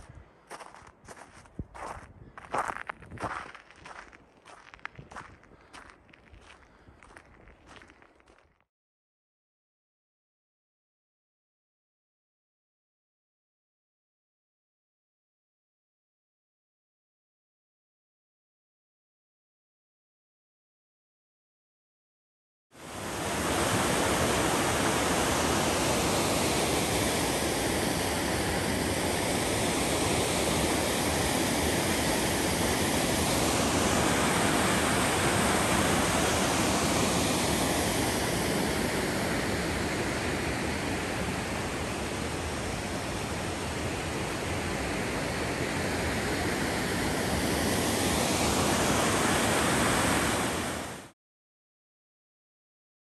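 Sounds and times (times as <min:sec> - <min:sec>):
waterfall rushing: 0:22.9 - 0:50.9.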